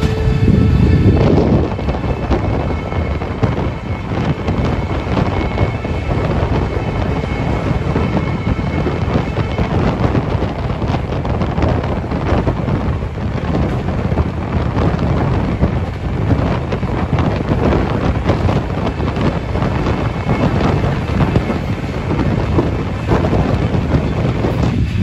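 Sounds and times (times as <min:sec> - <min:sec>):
rattles and clatter: 0:00.0 - 0:25.0
train running noise: 0:00.0 - 0:25.0
wind buffeting microphone: 0:00.0 - 0:25.0.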